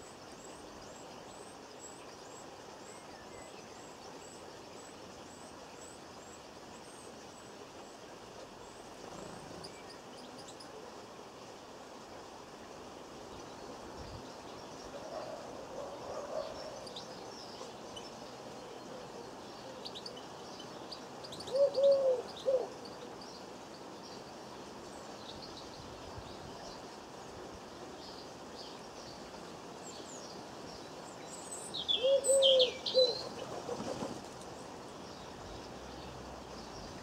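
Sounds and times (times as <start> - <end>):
dove cooing: 21.5 - 22.8, 32.0 - 34.1.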